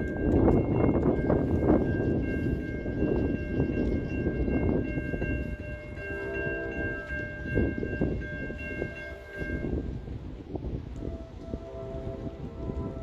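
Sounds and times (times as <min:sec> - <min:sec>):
crossing warning bells ringing: 0:00.0 - 0:13.0
gusty rumbling: 0:00.0 - 0:13.0
distant train horn: 0:05.5 - 0:10.0, 0:10.9 - 0:13.0.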